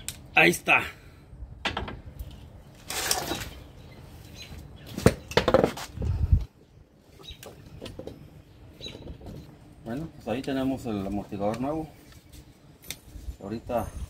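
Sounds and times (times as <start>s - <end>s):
scraping rustle: 2.8s - 3.6s.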